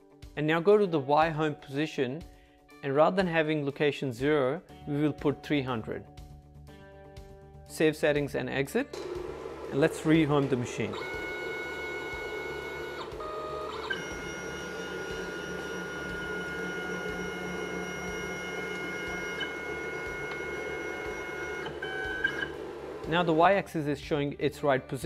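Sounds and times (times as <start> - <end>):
stepper motors whining: 10.4 - 23.2.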